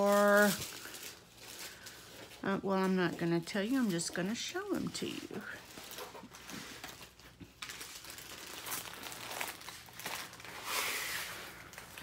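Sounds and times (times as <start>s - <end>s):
plastic packaging crinkling: 0.0s - 12.0s.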